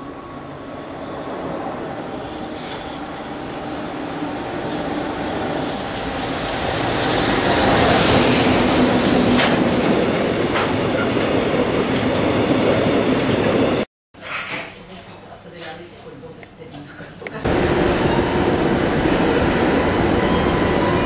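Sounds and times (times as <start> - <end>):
train wheels rumbling on rails: 1.8 - 13.8, 17.5 - 21.0.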